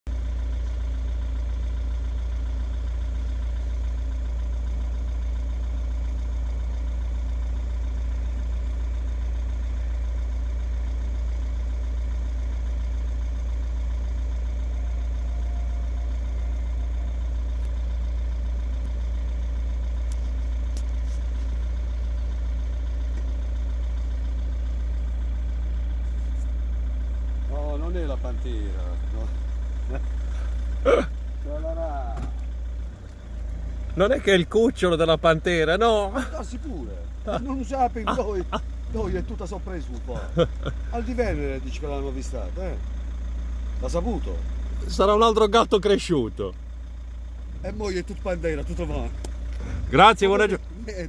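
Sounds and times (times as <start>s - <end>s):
vehicle engine idling: 0.1s - 51.0s
faint steady tones: 14.1s - 19.1s.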